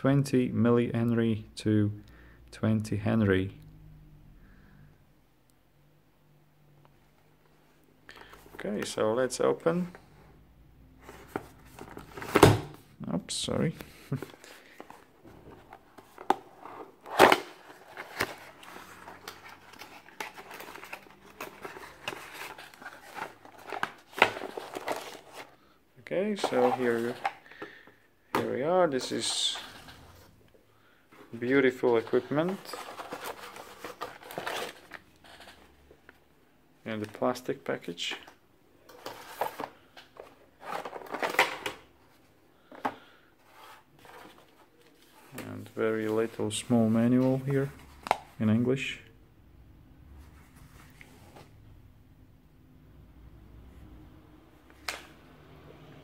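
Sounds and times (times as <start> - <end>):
plastic packaging rustling: 14.1 - 25.6, 31.4 - 35.8.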